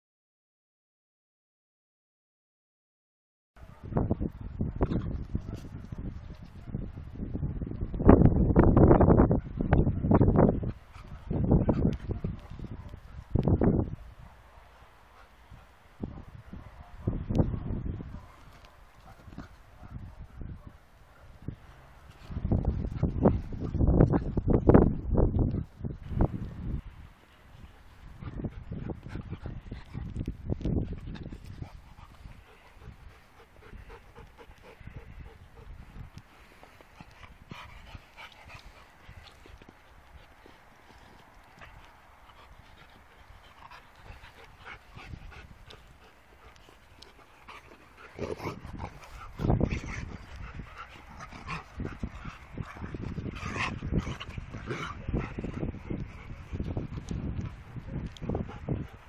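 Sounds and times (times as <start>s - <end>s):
dogs barking and yipping: 9.4s - 13.6s, 14.2s - 21.5s, 41.5s - 59.0s.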